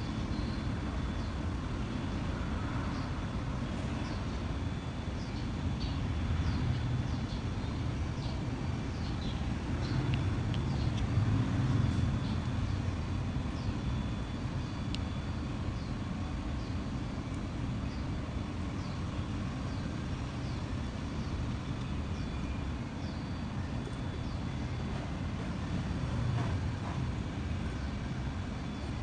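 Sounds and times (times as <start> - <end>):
low background rumble: 0.0 - 29.0
faint high chirp: 13.6 - 24.9.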